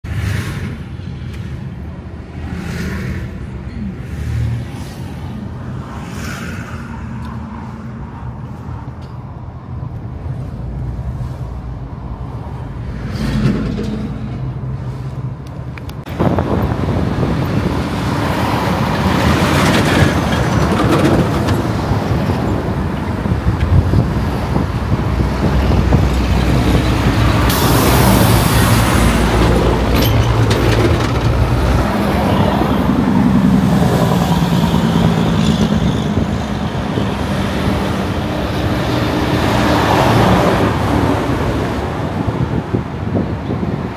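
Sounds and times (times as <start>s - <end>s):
road and wind noise from vehicle: 0.0s - 43.9s
trucks passing on highway: 0.0s - 43.9s.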